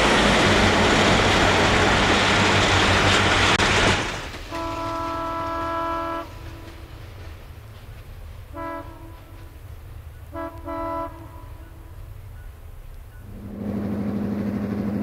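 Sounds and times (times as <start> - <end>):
locomotive air horn blasts: 4.5 - 6.8, 8.5 - 9.5, 10.3 - 12.0.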